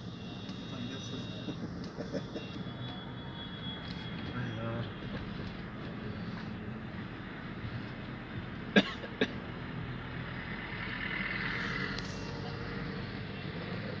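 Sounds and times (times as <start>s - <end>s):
man coughing: 8.8s - 9.4s.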